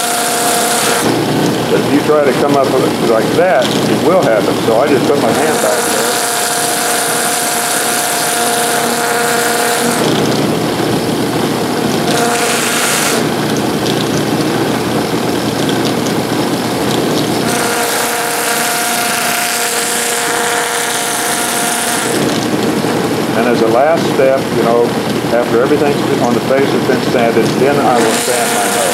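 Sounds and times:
wood sanding scratch: 0.0 - 10.4, 27.8 - 28.9
sanding wheel whine: 0.0 - 24.0, 24.6 - 28.9.

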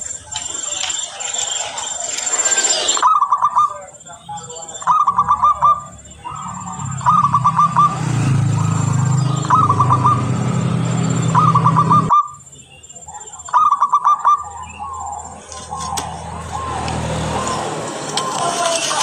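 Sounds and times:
dove cooing: 3.0 - 3.9, 4.5 - 12.3, 13.5 - 19.0.

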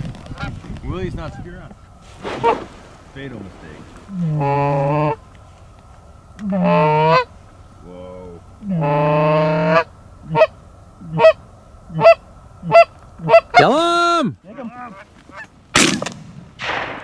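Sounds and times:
goose clucking: 4.1 - 5.2, 6.4 - 7.3, 8.6 - 13.8, 14.4 - 15.6
goose honking: 4.1 - 5.2, 6.4 - 7.3, 8.6 - 15.6.

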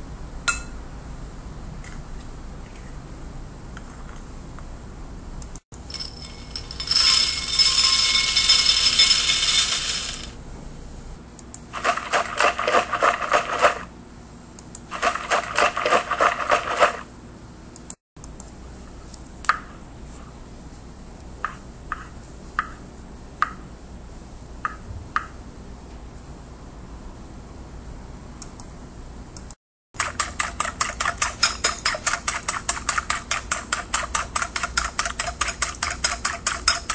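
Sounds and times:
grains rattling into a bowl: 5.8 - 10.3.

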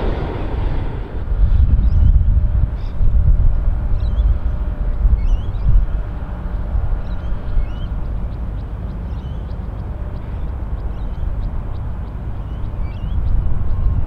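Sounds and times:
jet engines rumbling: 0.0 - 14.0
small birds chirping: 3.6 - 14.0.

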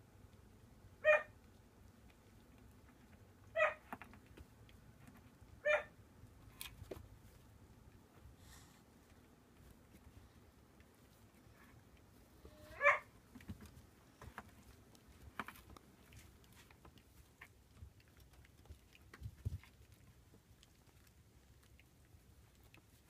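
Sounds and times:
puppy yelp: 1.0 - 1.4, 3.5 - 4.0, 5.6 - 6.0, 12.5 - 13.1.

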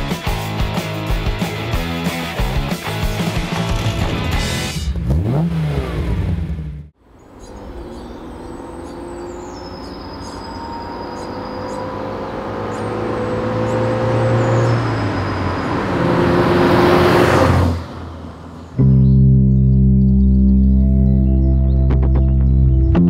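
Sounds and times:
rock intro music: 0.0 - 5.0, 18.8 - 23.0
car engine approaching: 3.2 - 23.0.

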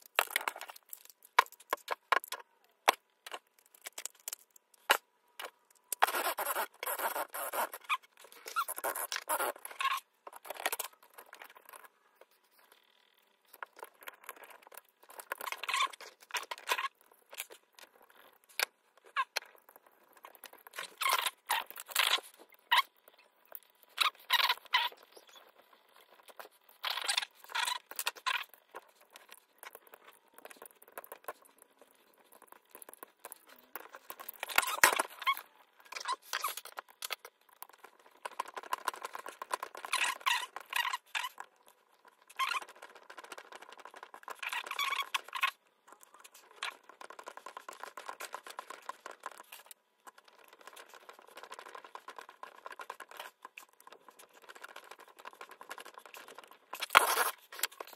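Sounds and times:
hands handling plastic parts: 0.0 - 6.2.

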